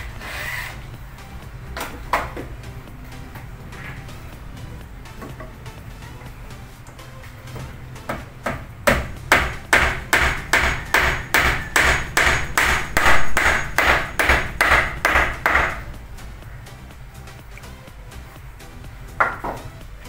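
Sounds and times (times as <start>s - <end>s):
hammer striking wood: 7.6s - 15.9s, 19.2s - 19.7s.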